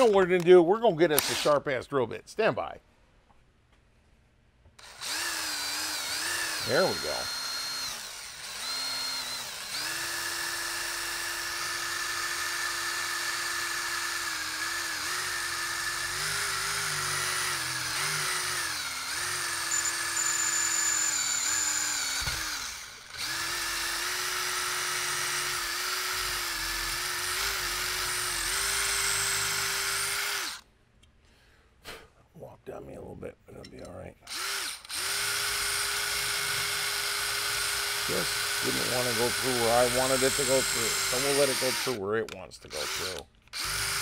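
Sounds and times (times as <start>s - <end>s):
electric drill boring into metal: 4.8s - 30.6s, 34.3s - 42.0s, 42.7s - 44.0s.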